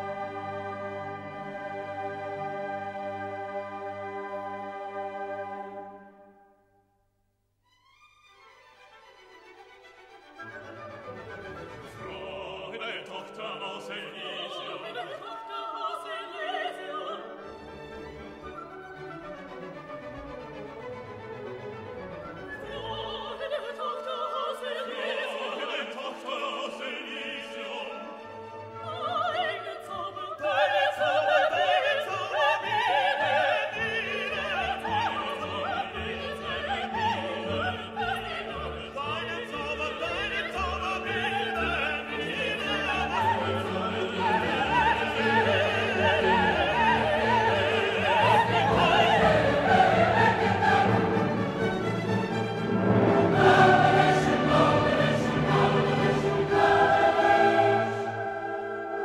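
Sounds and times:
orchestra playing: 0.0 - 6.4, 8.1 - 15.0, 16.8 - 23.8, 31.1 - 59.0
operatic singing: 11.3 - 19.0, 22.2 - 59.0.

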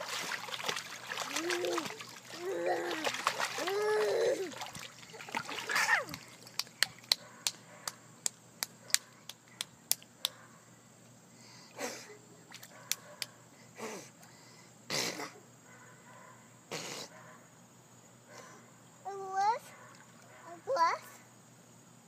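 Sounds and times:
child vocal sounds: 1.2 - 4.7.

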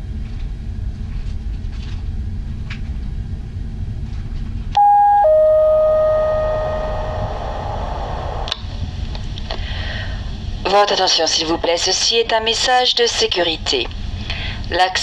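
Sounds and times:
two-note ding-dong chime: 4.8 - 7.4
ship engines rumbling: 4.8 - 8.9.

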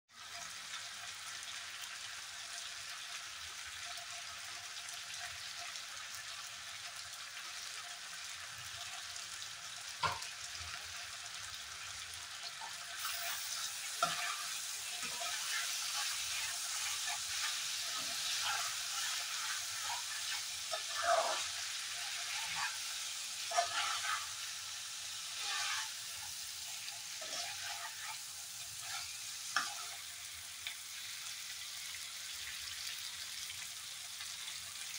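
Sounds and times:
curry sizzling in a pan: 0.1 - 34.9
spatula scraping a pan: 12.6 - 30.1.

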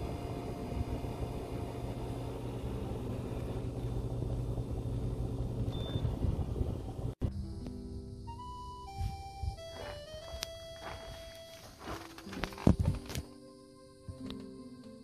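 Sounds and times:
air conditioner hum: 0.0 - 7.2
blower rushing: 0.0 - 7.2.

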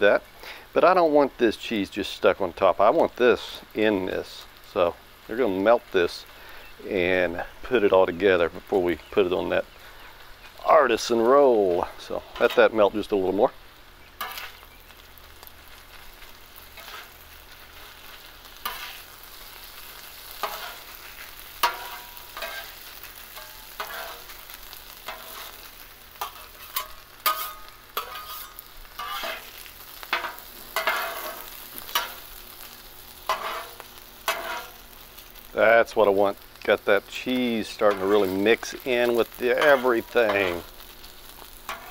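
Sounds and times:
meat sizzling: 0.0 - 41.9
spatulas scraping on griddle: 14.0 - 41.9.

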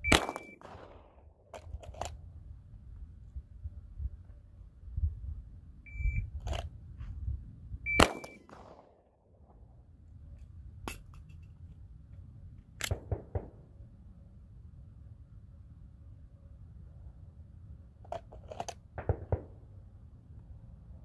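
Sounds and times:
handgun shot: 0.0 - 1.2, 8.0 - 8.9
shot timer beeps: 5.9 - 6.3, 7.9 - 8.5.

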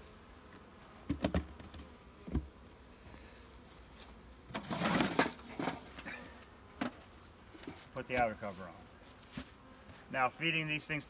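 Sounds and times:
bees buzzing: 0.0 - 11.0
wood scraping rustle: 3.5 - 10.2.

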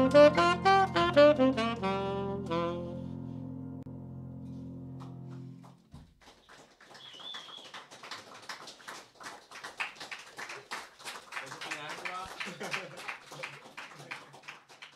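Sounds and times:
tenor saxophone: 0.0 - 3.9
piano chord ringing: 0.0 - 5.8.

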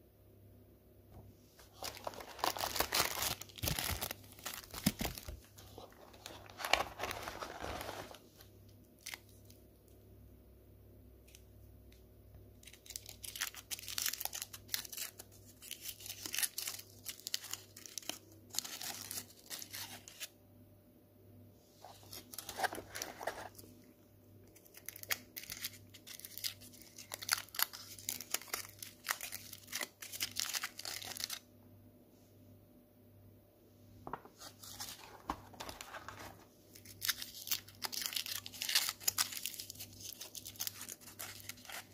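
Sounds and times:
foil wrappers crinkling and tearing: 1.7 - 8.2, 12.6 - 20.3, 24.5 - 31.4, 34.6 - 41.9.

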